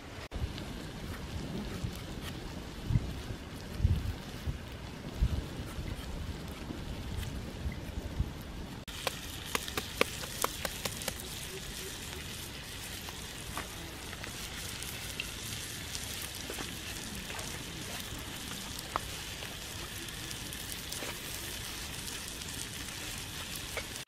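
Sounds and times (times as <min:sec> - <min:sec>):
steady hiss: 0:08.8 - 0:24.0.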